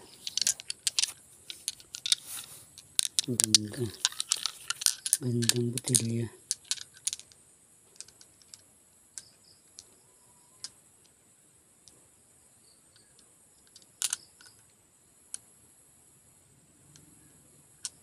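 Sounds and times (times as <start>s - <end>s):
glass bottles clicking together: 0.0s - 7.2s.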